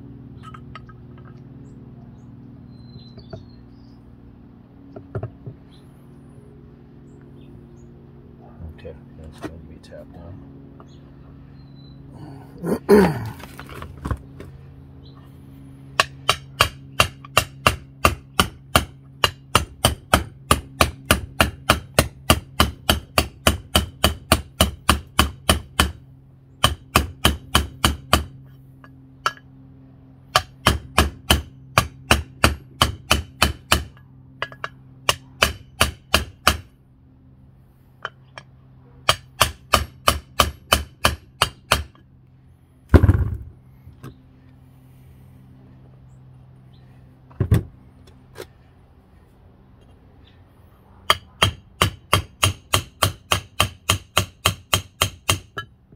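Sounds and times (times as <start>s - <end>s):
steady low hum: 0.0s - 55.9s
hammer tapping metal: 26.6s - 29.5s, 30.3s - 36.7s, 38.0s - 42.0s, 51.1s - 55.8s.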